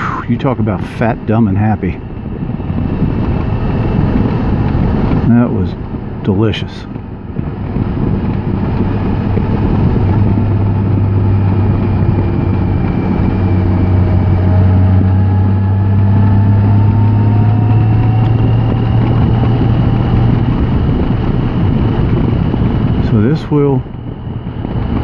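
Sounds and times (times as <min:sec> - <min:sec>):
faint whine: 0:00.0 - 0:25.0
motorcycle engine hum: 0:00.0 - 0:25.0
wind rushing: 0:00.0 - 0:25.0.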